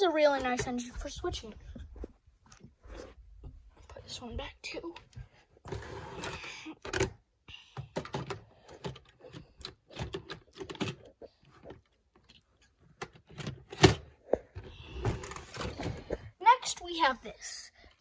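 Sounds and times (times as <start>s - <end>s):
plastic clicks and clatters: 7.8s - 16.2s.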